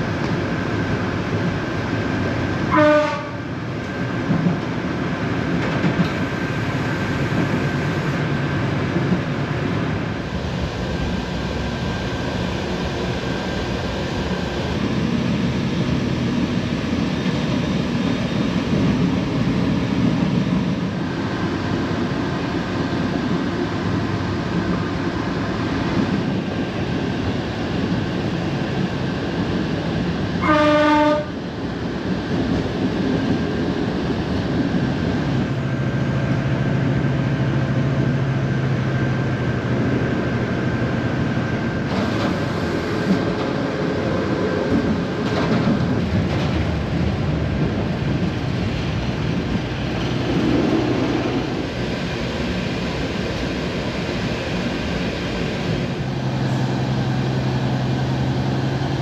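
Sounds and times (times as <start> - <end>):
train running gear rumble: 0.0 - 59.0
train horn blasts: 2.7 - 3.5, 30.4 - 31.4.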